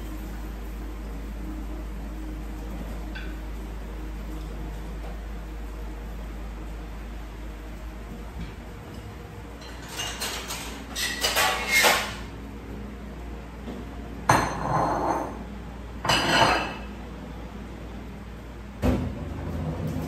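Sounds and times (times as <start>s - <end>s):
dishes and utensils clinking: 8.9s - 12.3s, 16.0s - 16.9s.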